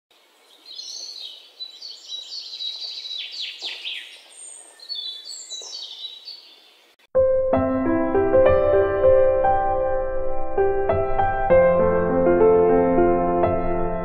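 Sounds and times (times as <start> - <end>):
birds chirping and singing: 0.2 - 7.0.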